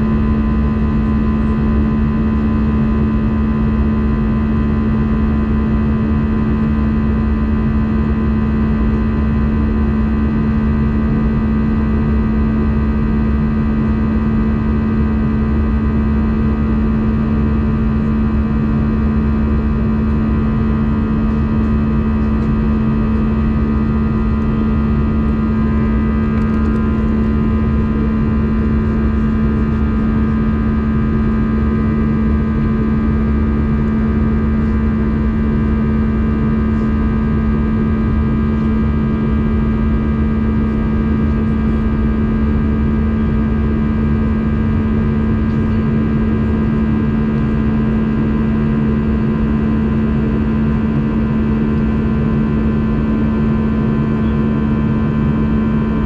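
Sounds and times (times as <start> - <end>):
aircraft engine drone: 0.0 - 56.0
steady whining tones: 22.2 - 29.2.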